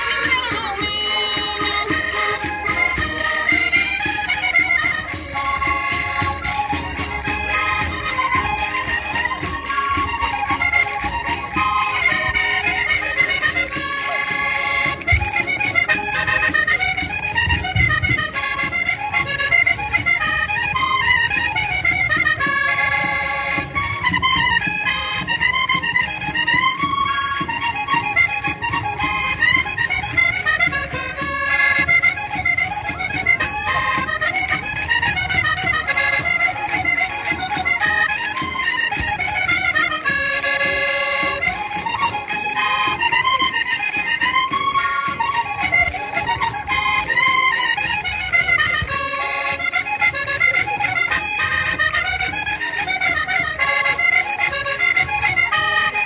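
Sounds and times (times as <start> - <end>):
accordion folk dance tune: 0.0 - 56.0.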